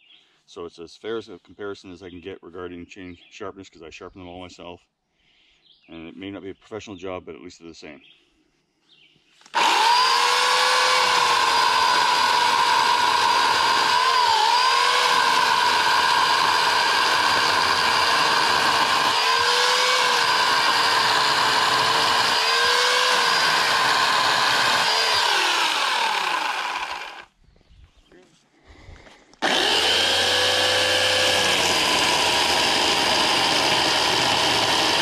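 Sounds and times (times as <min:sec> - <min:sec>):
electric chainsaw cutting logs: 0:09.4 - 0:27.4, 0:29.4 - 0:35.0.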